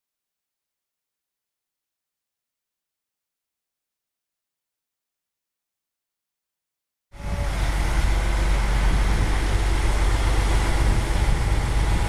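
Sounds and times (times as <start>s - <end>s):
low engine rumble: 7.2s - 12.0s.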